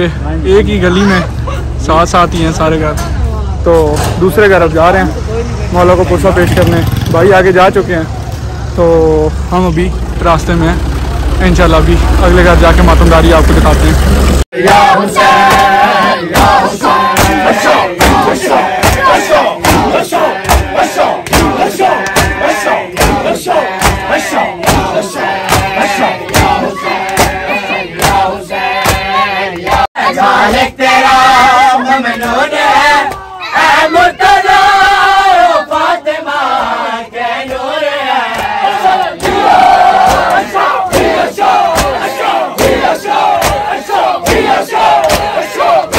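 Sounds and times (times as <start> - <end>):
men chanting: 14.5 - 45.9
crowd beating chests: 14.6 - 29.9, 37.5 - 45.9.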